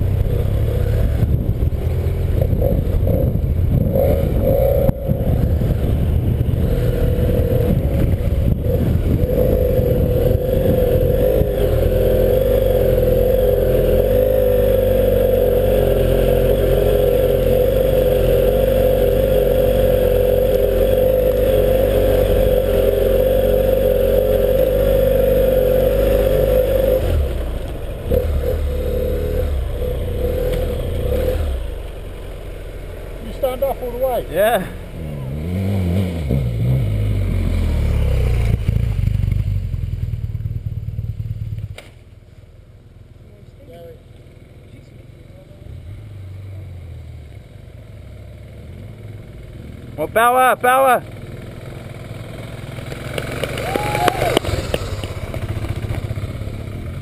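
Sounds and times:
wind rumble on microphone: 0.0s - 13.5s
motorcycle engine running: 0.0s - 46.2s, 46.8s - 57.0s
gravel clatter under tyres: 52.6s - 57.0s.

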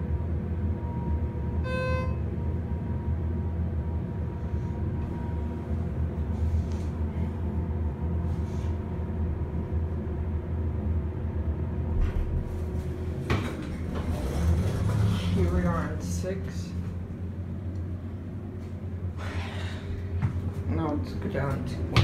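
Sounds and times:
elevator low hum: 0.0s - 22.0s
faint steady tones: 0.9s - 3.2s.

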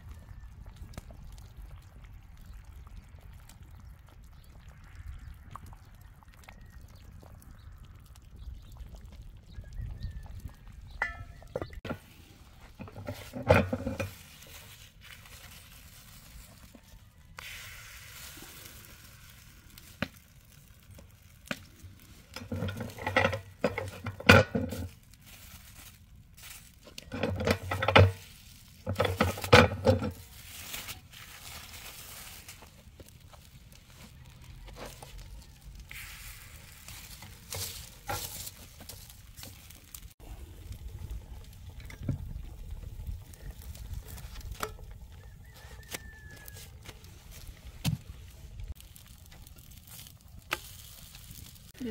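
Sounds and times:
ladle in a pot: 11.0s - 20.3s, 20.9s - 33.0s, 35.8s - 40.1s.

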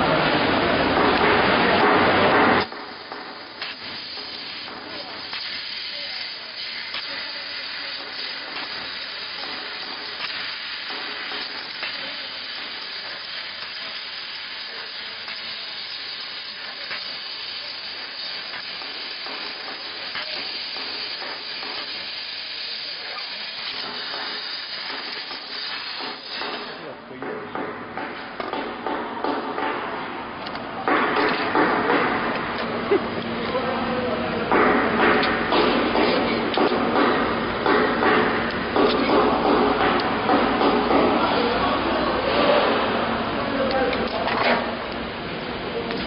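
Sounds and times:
laser cutter hissing: 1.2s - 26.9s.

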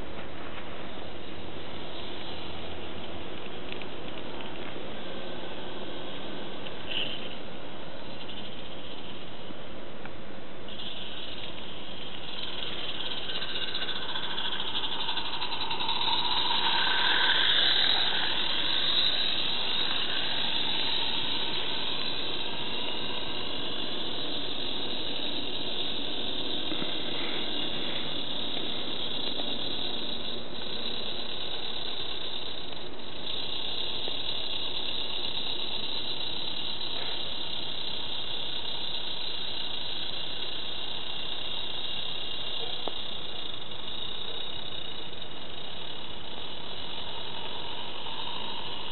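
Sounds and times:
model steam locomotive hissing: 10.6s - 48.9s.

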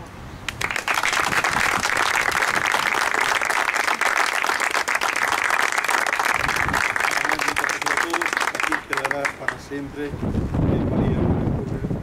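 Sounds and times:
people applauding: 0.5s - 9.6s.

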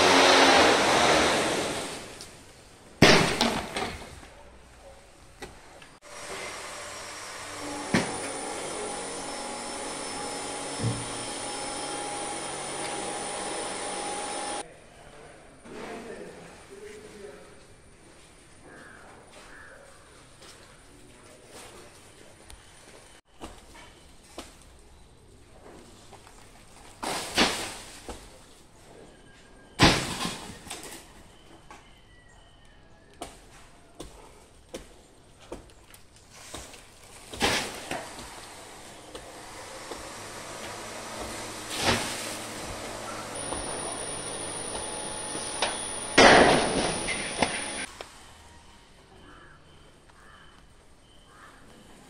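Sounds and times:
palm pieces crashing down: 3.0s - 4.1s, 26.8s - 28.4s, 29.8s - 31.0s, 36.4s - 38.4s, 41.0s - 47.9s
motor droning with whine: 6.9s - 14.6s, 39.0s - 47.9s.

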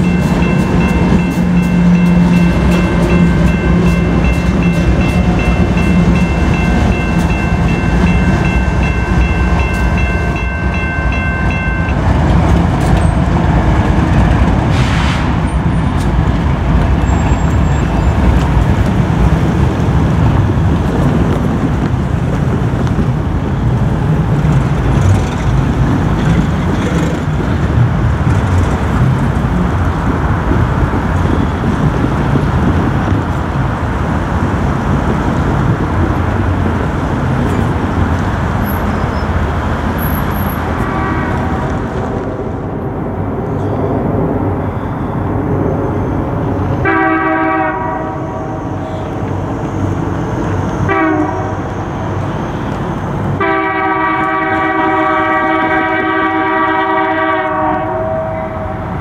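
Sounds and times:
locomotive chime horn: 0.0s - 12.1s, 40.0s - 41.8s, 46.8s - 49.2s, 50.8s - 52.0s, 53.4s - 59.0s
diesel train rumbling by: 0.0s - 59.0s.

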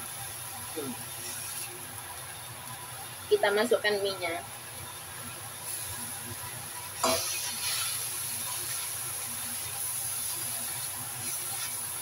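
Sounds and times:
stir-fry sizzling in a wok: 0.0s - 12.0s
spatula tossing noodles: 6.9s - 12.0s.

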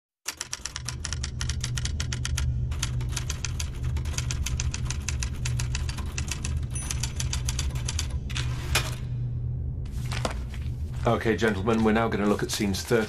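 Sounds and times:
typewriter keys clacking: 0.3s - 8.2s
low hum: 0.6s - 13.0s.

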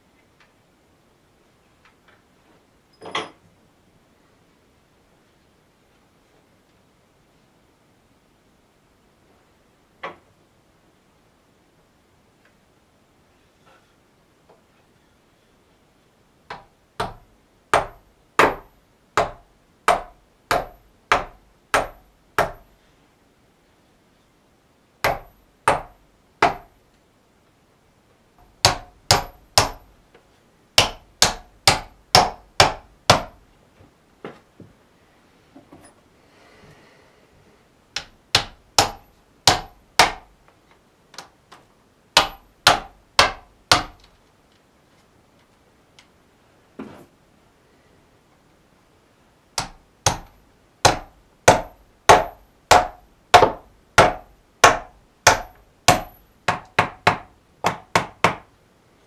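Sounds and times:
hammer driving nails: 16.5s - 22.7s, 25.0s - 26.7s, 28.4s - 29.9s, 30.8s - 33.4s, 38.0s - 40.3s, 42.2s - 44.1s, 49.6s - 58.5s.

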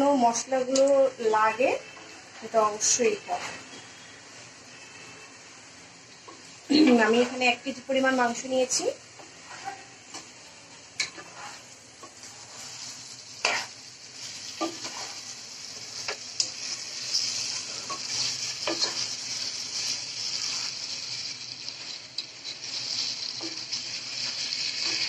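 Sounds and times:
meat sizzling in a pot: 0.0s - 25.0s
spatula knocking and scraping pot: 17.9s - 19.0s.

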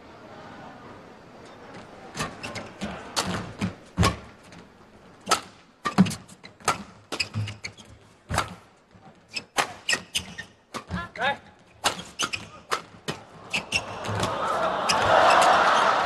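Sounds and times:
shoes squeaking on court: 2.2s - 4.2s, 5.3s - 8.6s, 9.2s - 14.3s.

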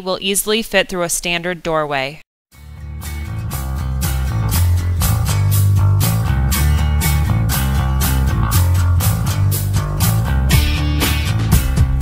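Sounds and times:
rock music with guitar and drums: 2.6s - 12.0s.

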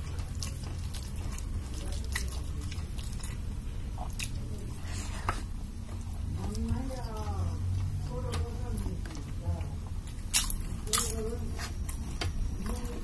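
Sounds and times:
wet chewing and lip-smacking: 0.0s - 13.0s.

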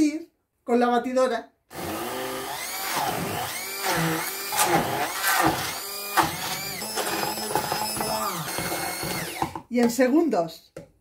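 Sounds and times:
stick blender motor whine: 1.7s - 9.6s.

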